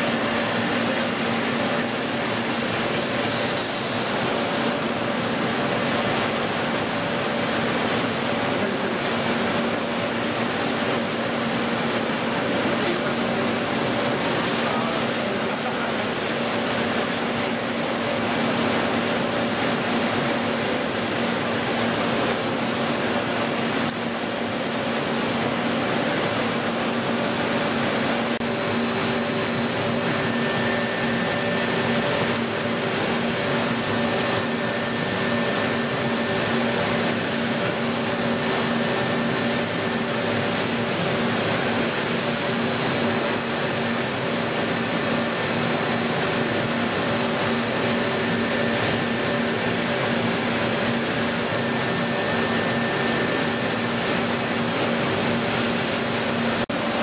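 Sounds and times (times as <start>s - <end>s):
machine tool cutting hiss: 2.2s - 4.4s.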